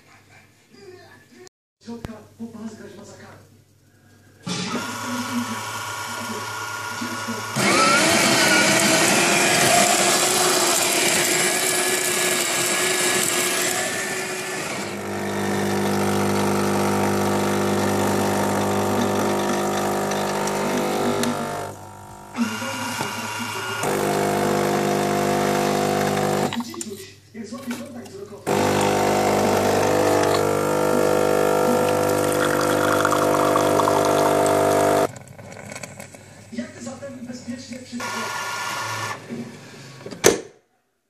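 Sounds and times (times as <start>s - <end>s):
coffee grinder running: 4.4s - 26.7s, 28.4s - 36.4s, 38.0s - 39.3s
pump humming: 4.5s - 26.6s, 28.5s - 35.1s.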